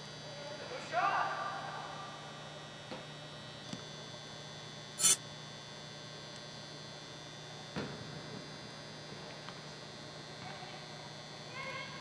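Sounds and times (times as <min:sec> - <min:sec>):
low indoor hum: 0:00.0 - 0:12.0
short sharp burst of noise: 0:05.0 - 0:05.2.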